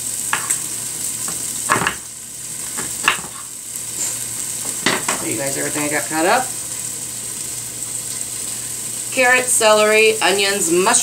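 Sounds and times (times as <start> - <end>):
chicken sizzling in a pot: 0.0 - 11.0.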